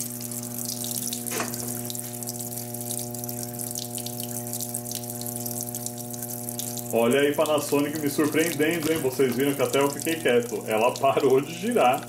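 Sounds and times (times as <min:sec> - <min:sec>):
steady hum: 0:00.0 - 0:12.0
water pouring into washing machine: 0:00.0 - 0:12.0.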